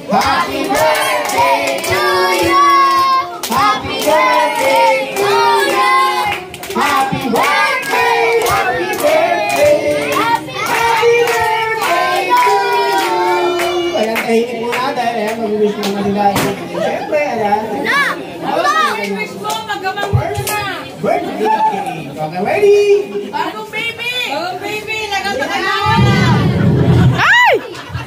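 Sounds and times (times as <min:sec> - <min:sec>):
group singing: 0:00.0 - 0:15.3
hands clapping: 0:00.2 - 0:13.2.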